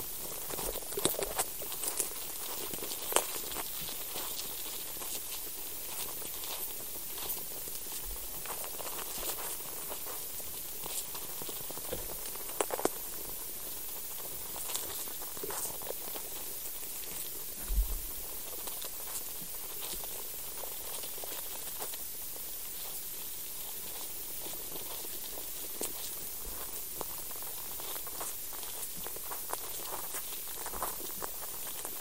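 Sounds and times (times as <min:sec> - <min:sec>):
faint scratching and clicking: 0:00.0 - 0:32.0
steady hiss: 0:00.0 - 0:32.0
low thump: 0:17.6 - 0:18.2.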